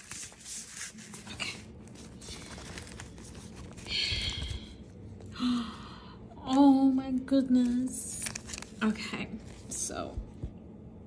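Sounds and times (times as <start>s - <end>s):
paper bag rustling: 0.0s - 4.8s.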